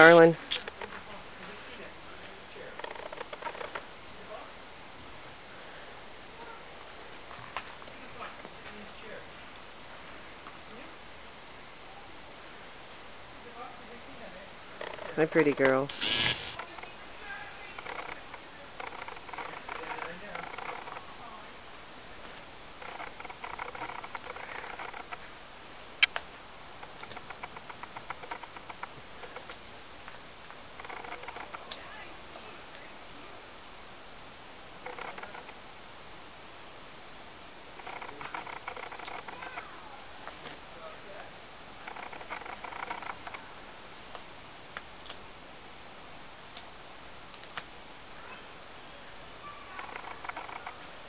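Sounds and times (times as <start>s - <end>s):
wet clicks and snaps: 47.3s - 47.7s.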